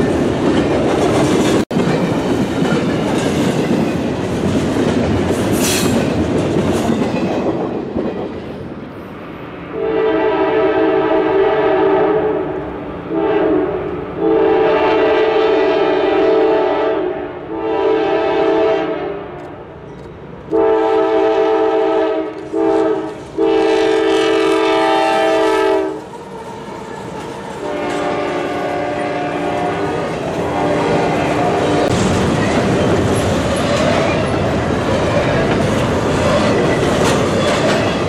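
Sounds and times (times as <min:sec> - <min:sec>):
train wheel clatter: 0:00.0 - 0:08.7, 0:25.2 - 0:38.0
train rumbling past: 0:00.0 - 0:38.0
locomotive air horn blasts: 0:09.7 - 0:19.4, 0:20.5 - 0:26.0, 0:27.6 - 0:31.9.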